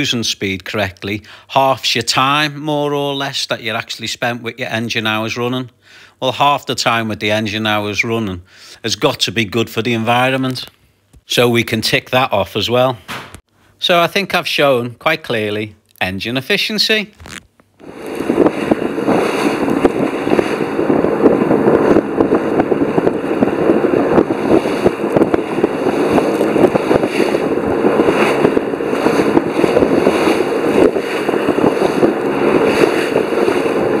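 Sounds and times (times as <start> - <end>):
wind noise: 17.2 - 34.0
water rushing along a hull: 17.8 - 34.0.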